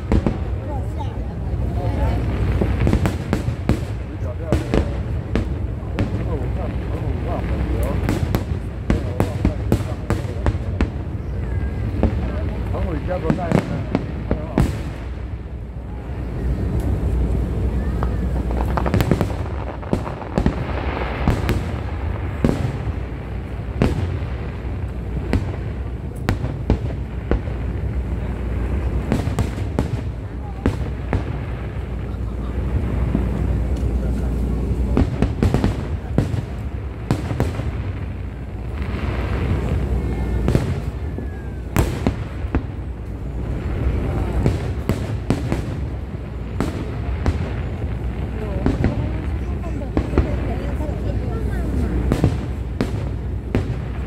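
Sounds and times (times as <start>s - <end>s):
crackling hiss: 0.0s - 54.0s
fireworks bangs: 0.0s - 54.0s
steady low rumble: 0.0s - 54.0s.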